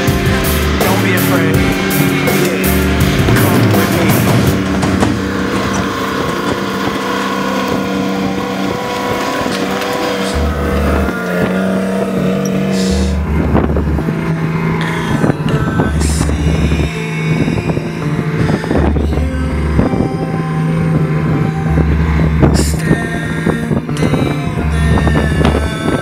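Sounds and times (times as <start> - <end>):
tracks clattering: 0.0 - 19.2
background music: 0.0 - 26.0
tracked vehicle engine running: 0.0 - 26.0
short knocks: 1.6 - 7.8.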